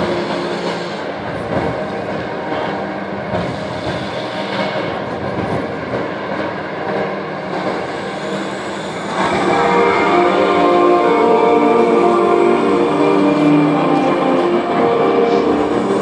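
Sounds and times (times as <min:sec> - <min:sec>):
sustained musical tones: 0:08.2 - 0:16.0.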